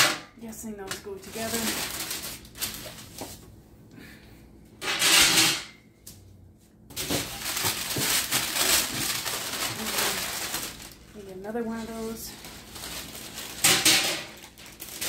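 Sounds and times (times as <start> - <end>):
paper and plastic rustling: 0.8 - 3.5, 6.9 - 15.0.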